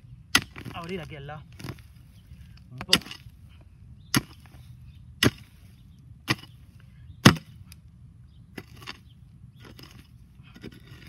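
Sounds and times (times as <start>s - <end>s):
mattock chopping into soil: 0.3s - 2.0s, 4.1s - 5.6s, 6.2s - 6.6s, 7.2s - 7.8s.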